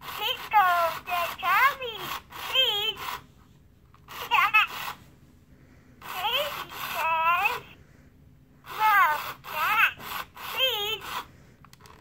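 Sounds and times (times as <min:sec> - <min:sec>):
toy's electronic voice chirping: 0:08.7 - 0:11.2.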